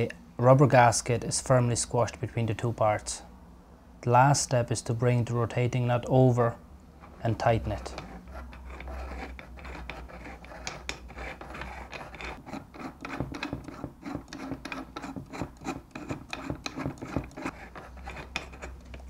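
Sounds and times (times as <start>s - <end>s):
fingers rubbing knurled metal nut: 7.0s - 19.0s.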